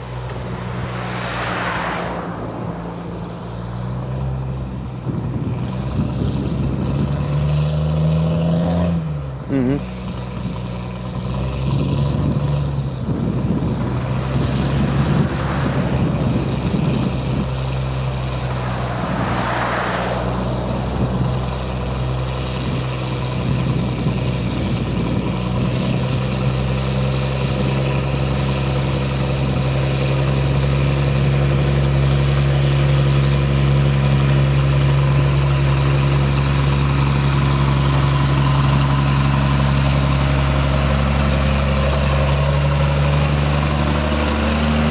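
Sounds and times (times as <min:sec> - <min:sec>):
diesel locomotive engine droning: 0:00.0 - 0:44.9.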